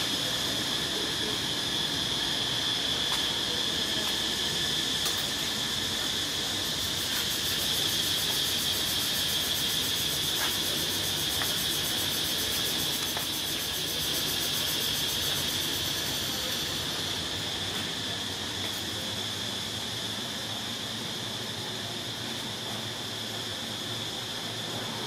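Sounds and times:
high-pitched insect chorus: 0.0s - 25.0s.

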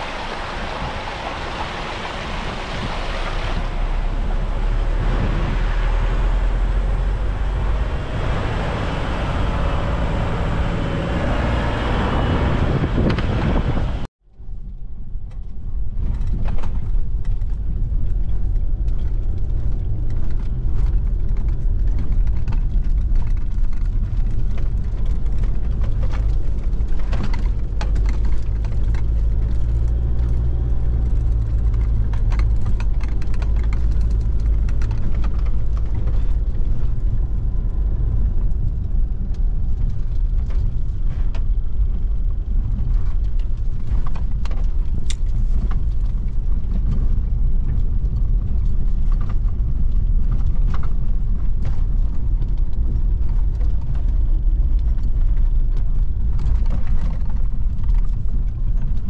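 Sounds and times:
vehicle engine and tyres rumbling: 0.0s - 59.0s
knocks and rattles: 15.3s - 37.5s.

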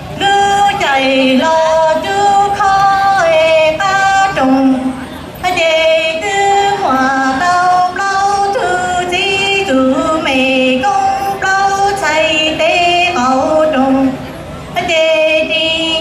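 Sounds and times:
woman singing unaccompanied: 0.0s - 16.0s.

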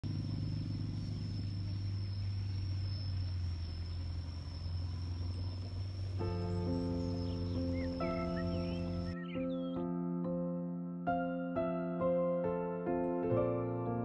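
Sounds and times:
music: 6.1s - 14.0s.

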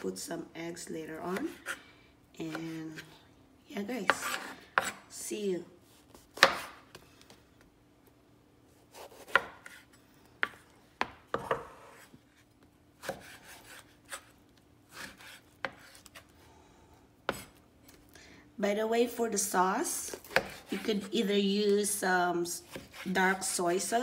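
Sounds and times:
knife chopping on cutting board: 4.0s - 5.0s, 6.2s - 6.8s, 8.9s - 12.1s, 13.0s - 14.3s, 14.9s - 16.2s, 17.3s - 17.6s, 20.2s - 20.9s, 22.6s - 23.4s.

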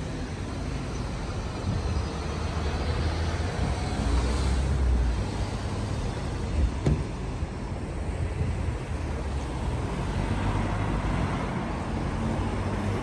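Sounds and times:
cars driving past: 9.2s - 13.0s.

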